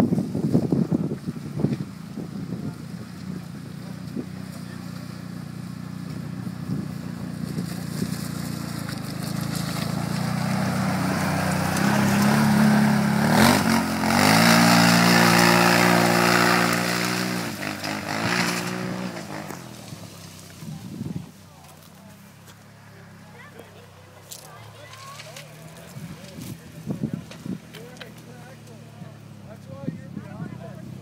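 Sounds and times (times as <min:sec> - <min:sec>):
atv engine revving past: 0:00.0 - 0:21.3.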